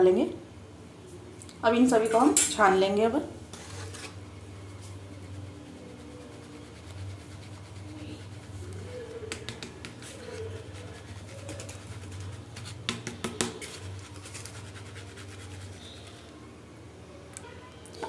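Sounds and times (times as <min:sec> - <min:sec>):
flour sifting in a sieve: 0:03.5 - 0:16.5.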